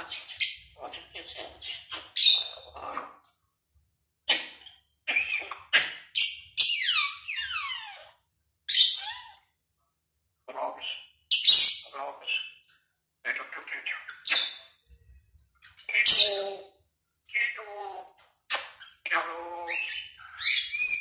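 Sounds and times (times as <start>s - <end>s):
parrot squawks and whistles: 19.7s - 21.0s.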